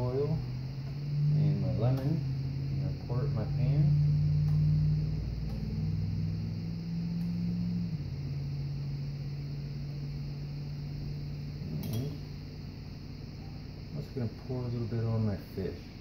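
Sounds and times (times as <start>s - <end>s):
low mechanical hum: 0.0s - 16.0s
sharp click: 11.8s - 12.2s.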